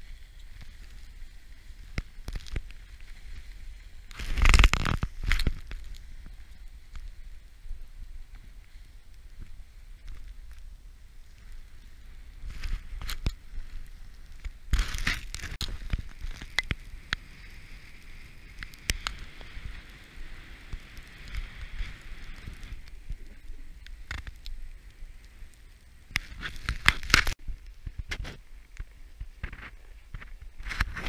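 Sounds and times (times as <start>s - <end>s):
snowboard scraping over snow: 0.0s - 24.1s
crackles and knocks: 0.0s - 31.0s
wind rumbling on microphone: 0.0s - 31.0s.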